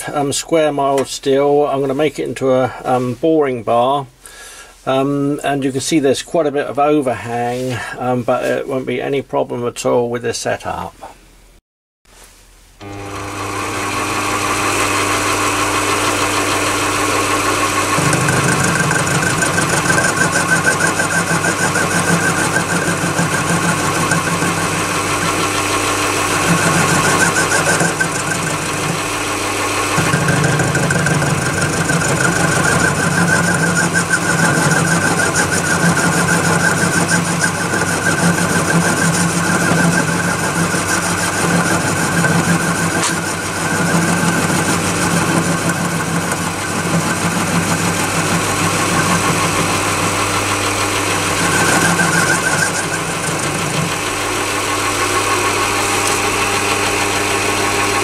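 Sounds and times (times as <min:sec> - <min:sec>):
lathe motor humming: 0:12.8 - 0:58.0
lathe tool cutting steel: 0:12.8 - 0:58.0.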